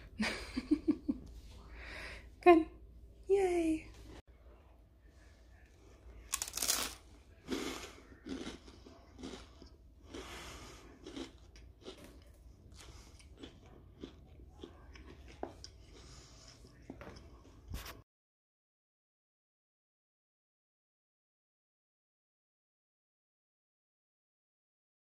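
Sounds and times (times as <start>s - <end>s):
biting crisp toast: 6.2s - 10.4s, 11.0s - 15.8s
crunchy chewing: 6.2s - 17.6s.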